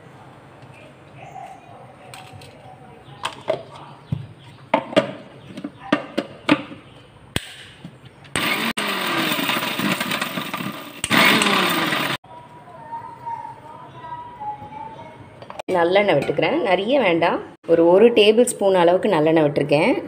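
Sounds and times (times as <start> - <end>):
mixer grinder grinding: 8.4 - 12.2.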